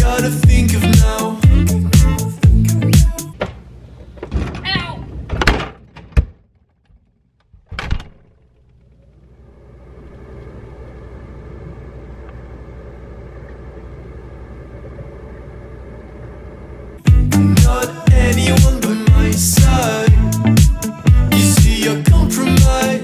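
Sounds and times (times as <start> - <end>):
low mechanical hum with tones: 8.3 - 17.1.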